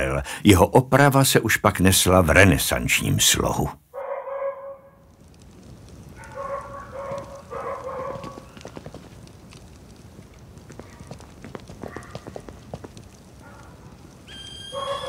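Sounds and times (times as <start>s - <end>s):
footsteps on cobblestones: 5.6s - 14.4s.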